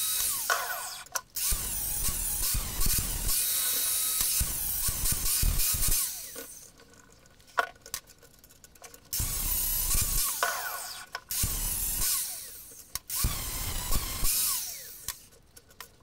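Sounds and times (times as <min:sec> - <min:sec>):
angle grinder grinding metal: 0:00.0 - 0:06.7, 0:09.2 - 0:15.3.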